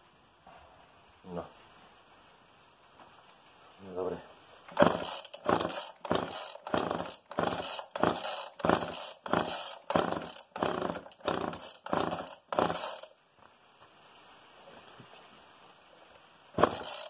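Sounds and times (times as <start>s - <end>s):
chainsaw recoil starter cranking: 4.7s - 13.1s, 16.6s - 17.0s.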